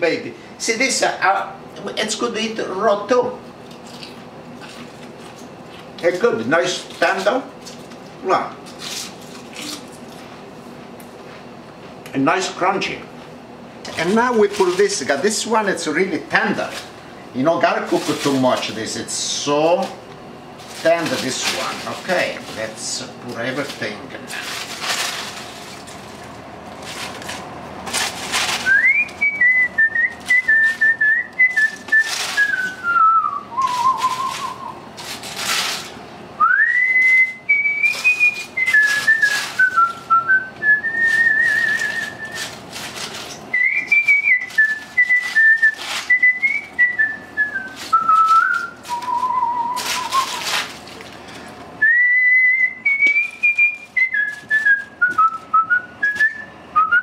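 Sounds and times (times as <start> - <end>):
cabbage leaves crackling and rustling: 3.6 - 10.4, 13.9 - 57.0
man whistling a tune: 28.7 - 34.8, 36.4 - 42.4, 43.5 - 50.4, 51.8 - 57.0.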